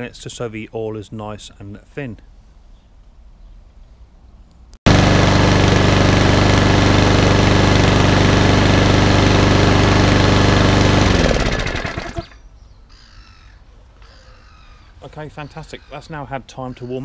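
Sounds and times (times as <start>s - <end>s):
lawnmower engine idling: 4.9s - 12.4s.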